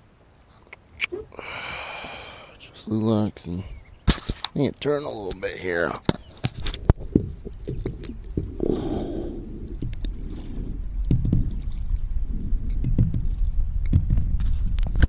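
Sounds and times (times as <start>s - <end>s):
paddle swishing through water: 6.2s - 14.8s
low rumble: 6.8s - 15.0s
paddle knocking against hull: 11.0s - 12.0s, 12.8s - 14.4s.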